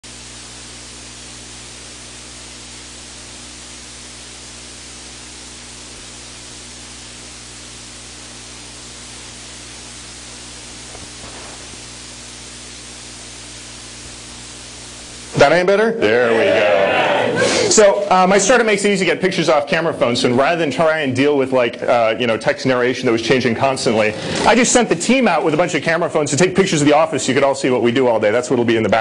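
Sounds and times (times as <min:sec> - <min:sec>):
electronic hiss: 0:00.0 - 0:15.8
low even hum: 0:00.1 - 0:27.8.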